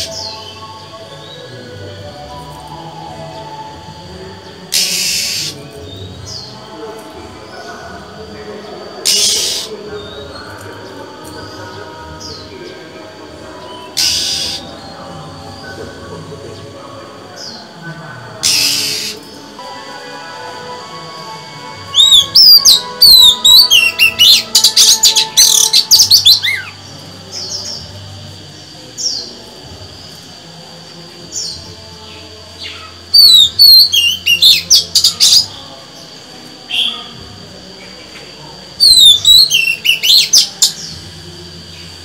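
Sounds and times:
bird whistled song phrases: 0:21.9 - 0:26.7, 0:33.2 - 0:35.4, 0:38.8 - 0:40.8.

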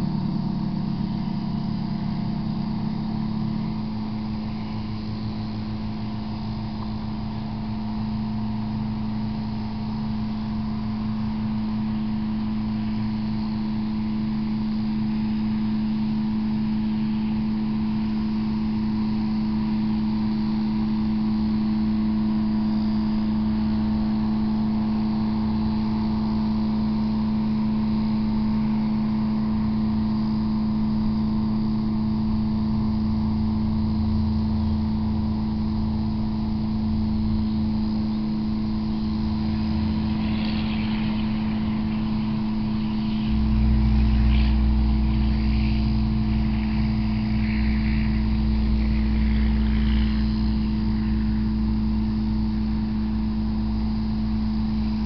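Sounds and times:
pitched mechanical hum: 0:00.0 - 0:55.0
low rumble: 0:33.4 - 0:53.2.

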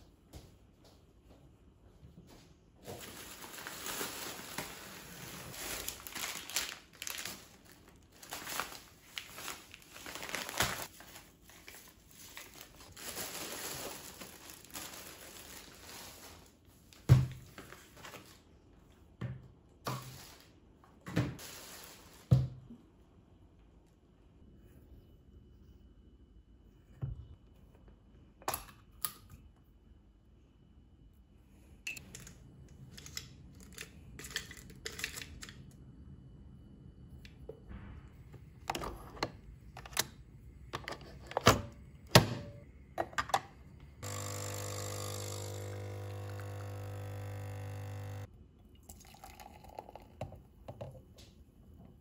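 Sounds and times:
plastic bag crinkling: 0:03.0 - 0:16.6.

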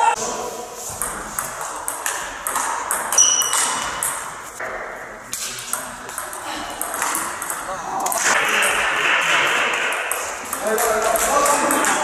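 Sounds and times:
high squeak: 0:03.1 - 0:03.7.

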